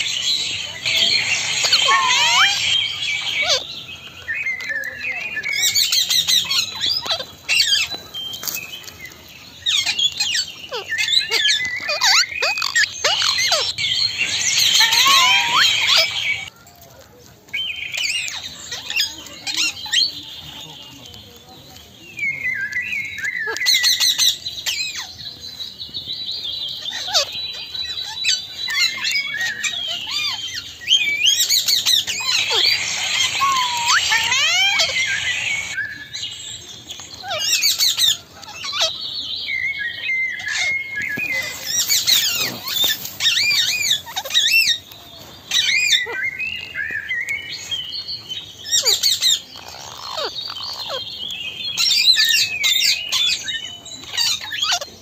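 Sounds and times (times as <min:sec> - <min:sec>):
parakeets chirping and squawking: 0:00.0 - 0:16.5, 0:23.5 - 0:25.1, 0:26.7 - 0:36.2, 0:37.2 - 0:39.0, 0:40.3 - 0:46.2, 0:48.6 - 0:55.0.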